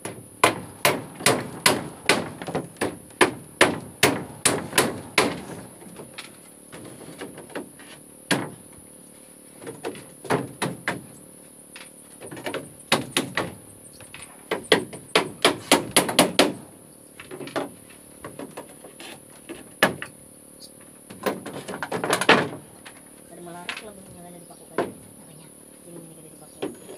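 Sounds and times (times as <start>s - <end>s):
hammer driving nails into wood: 0.0s - 5.6s, 14.5s - 16.6s.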